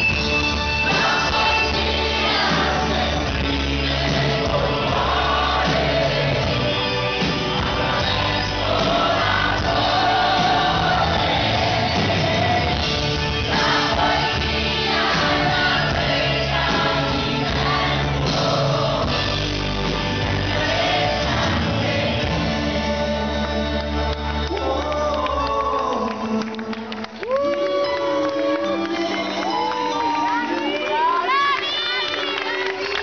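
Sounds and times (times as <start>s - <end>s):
live pop-rock band: 0.0s - 30.7s
man singing lead: 21.1s - 27.1s.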